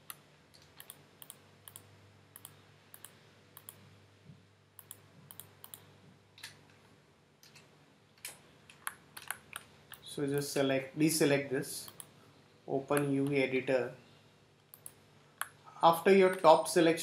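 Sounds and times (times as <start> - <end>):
computer mouse clicks: 0.0 - 3.8, 4.8 - 6.6, 11.8 - 12.1, 14.7 - 15.6
low steady hum: 0.0 - 17.0.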